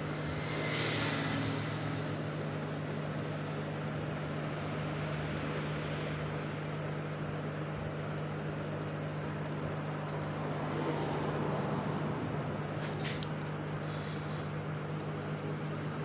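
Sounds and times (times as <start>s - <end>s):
hot air gun blowing: 0.0s - 2.4s
low hum: 0.0s - 4.1s.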